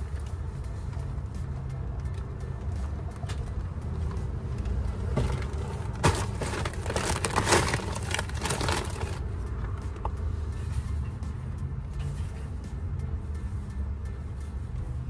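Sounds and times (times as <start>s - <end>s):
bags rustling and crinkling: 5.2s - 9.2s.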